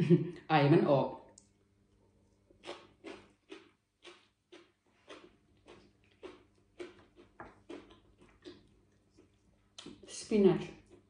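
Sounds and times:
person chewing moist crunches: 2.2 - 11.0.

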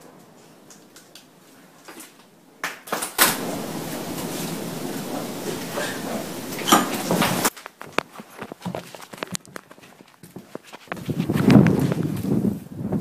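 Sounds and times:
door slamming: 3.2 - 7.5
loud rough noise: 3.2 - 7.5.

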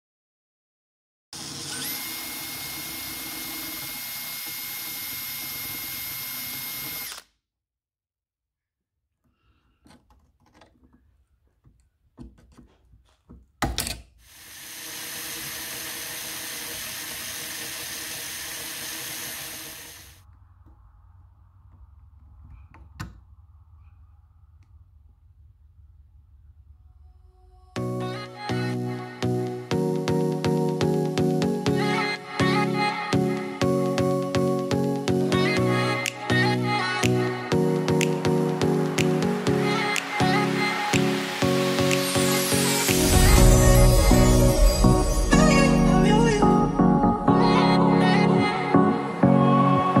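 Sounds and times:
power tool motor whining: 1.4 - 7.3, 14.3 - 20.2.

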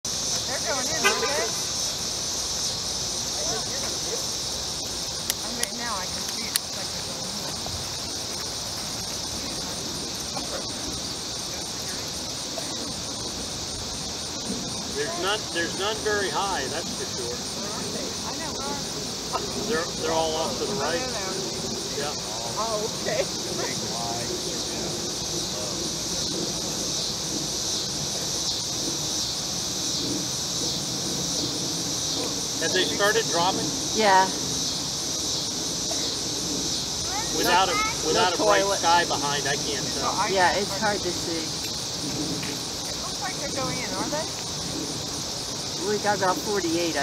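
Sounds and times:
crickets chirping: 0.0 - 47.0
faint repeating insect pulse: 0.0 - 47.0
insect chorus drone: 0.0 - 47.0.

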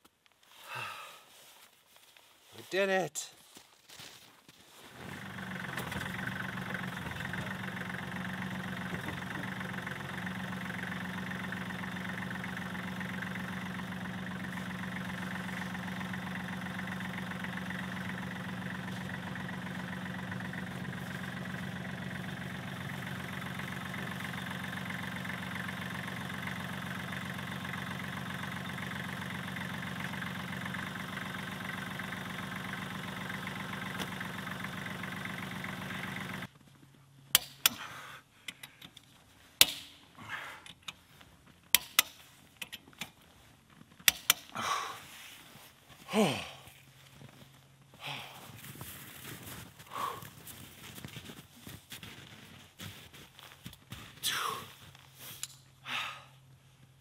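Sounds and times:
tractor diesel engine idling: 5.0 - 36.5, 44.0 - 51.4.

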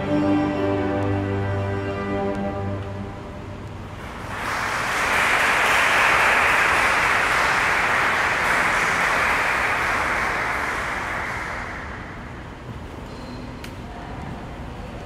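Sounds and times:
cello ensemble low note: 0.0 - 4.4
audience applauding: 4.0 - 12.2.

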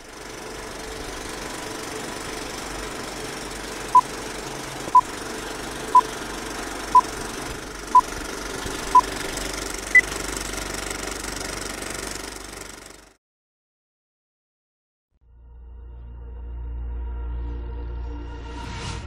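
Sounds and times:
film projector clattering: 0.0 - 13.2.

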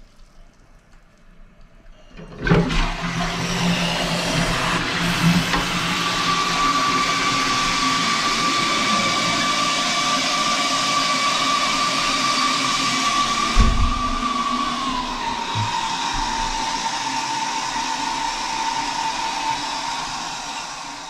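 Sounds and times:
low thump: 13.6 - 14.2.

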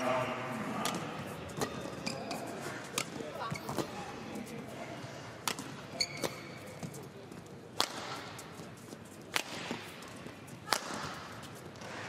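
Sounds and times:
rackets hitting shuttlecock: 0.8 - 4.0, 5.4 - 6.9, 7.7 - 8.6, 9.3 - 12.0
shoes squeaking on floor: 1.4 - 2.8, 3.4 - 4.0, 5.9 - 7.0.

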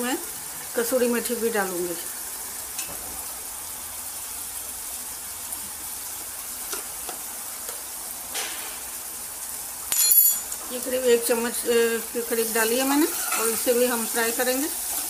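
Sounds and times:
food sizzling in a pan: 0.0 - 15.0
utensil clinks: 9.9 - 10.6.

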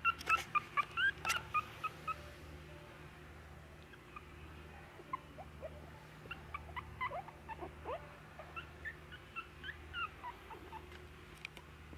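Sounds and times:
puppies squeaking and whimpering: 0.0 - 2.2, 5.1 - 10.9
low steady hum: 0.0 - 11.9.

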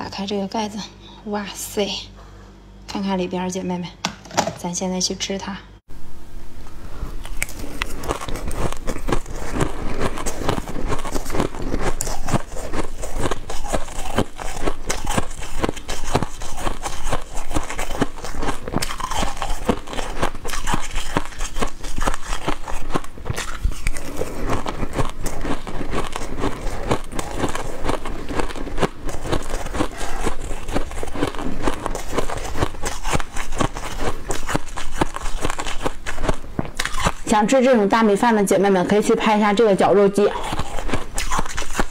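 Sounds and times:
crushed ice being chewed: 7.1 - 37.3, 40.2 - 41.9.

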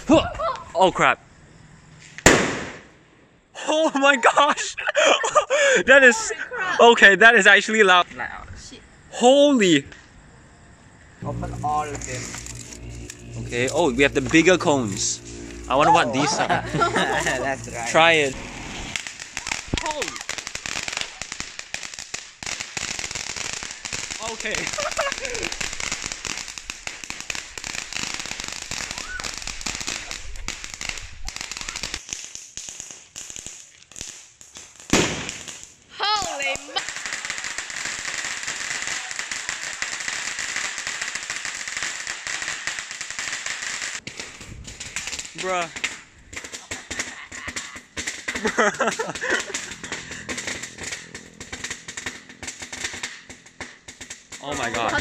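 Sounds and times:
fireworks crackling: 0.0 - 0.7, 2.0 - 7.9, 11.1 - 55.0
person exclaiming: 0.0 - 0.8, 15.7 - 18.0, 19.5 - 20.3, 36.0 - 36.8
loud firework bang: 2.2 - 3.0, 11.2 - 21.2, 34.9 - 35.4, 44.0 - 54.8.

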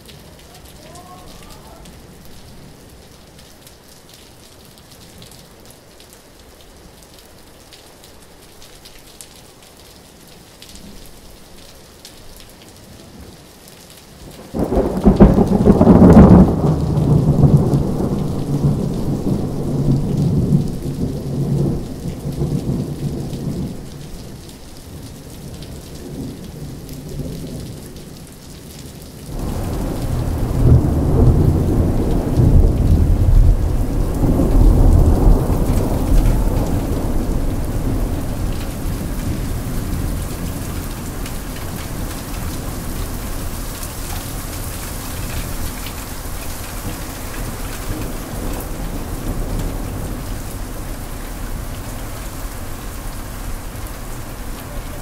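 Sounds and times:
rain falling: 0.0 - 55.0
thunder rumbling: 14.3 - 24.4, 29.3 - 55.0.

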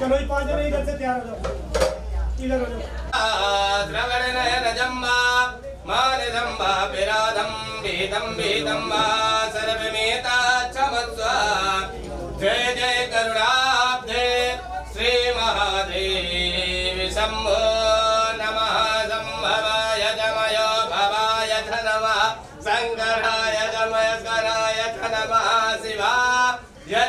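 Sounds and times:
man chanting a hymn: 3.2 - 27.0.

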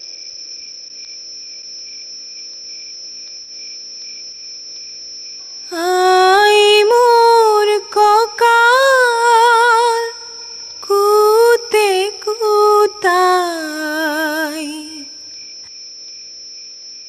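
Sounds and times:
crickets chirring: 0.0 - 17.0
woman singing with vibrato: 5.7 - 15.3.

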